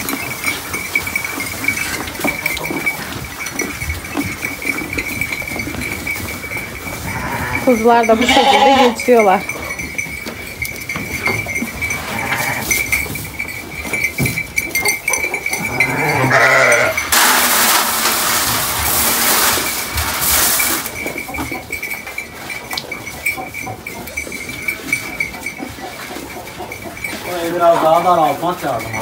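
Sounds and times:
knocks and shuffling in straw: 0.0s - 29.0s
sheep bleating: 7.0s - 9.1s, 15.6s - 17.0s
grain pouring into metal feeder: 17.1s - 20.9s.

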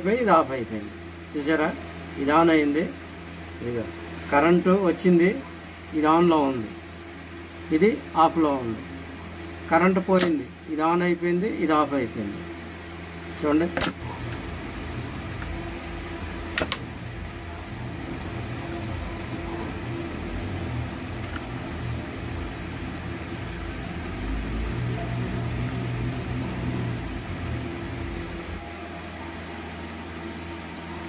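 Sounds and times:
steady low hum: 0.0s - 31.0s
electrical switch clicks: 10.2s - 10.4s, 13.8s - 14.4s, 16.5s - 16.9s.

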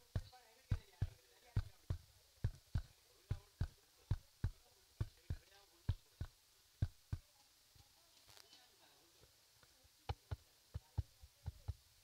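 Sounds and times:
dull thumps like a heartbeat: 0.0s - 7.3s, 10.1s - 11.8s.

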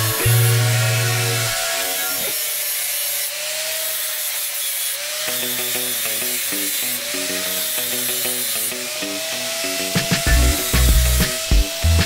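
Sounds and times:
background music: 0.0s - 2.3s, 9.0s - 12.0s
angle grinder grinding metal: 0.0s - 12.0s.

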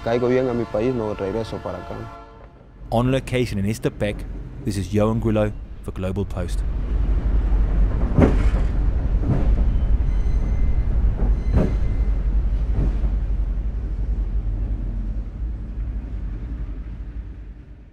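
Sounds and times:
freight train rumble: 0.0s - 17.9s
wheels clacking over rail joints: 7.5s - 13.3s.

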